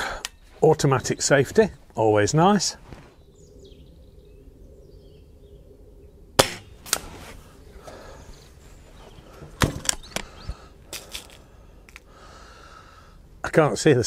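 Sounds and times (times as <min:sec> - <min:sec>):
air rifle firing crack: 0:06.4 - 0:07.1.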